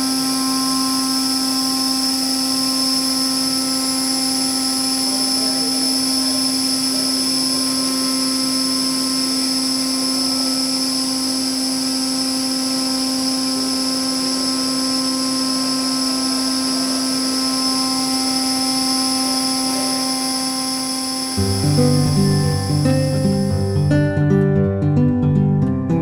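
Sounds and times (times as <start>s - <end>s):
turbine whine: 0.0s - 24.0s
low hum: 16.1s - 24.1s.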